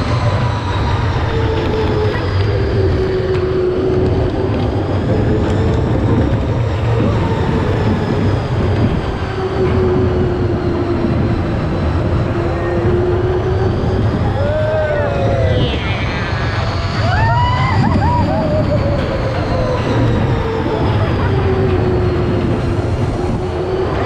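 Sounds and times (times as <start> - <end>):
ride rumbling along track: 0.0 - 24.0
thin whine: 0.0 - 24.0.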